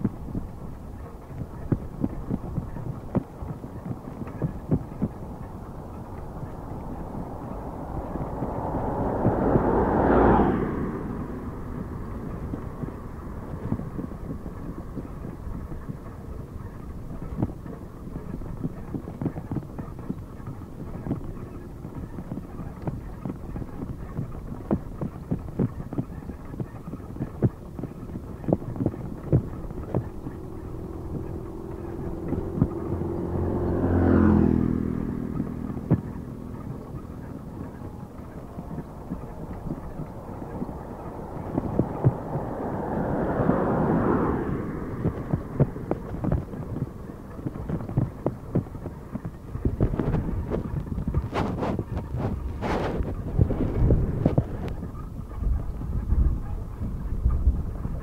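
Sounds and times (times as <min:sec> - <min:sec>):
road rumble: 0:00.0 - 0:58.0
wind over a microphone: 0:00.0 - 0:58.0.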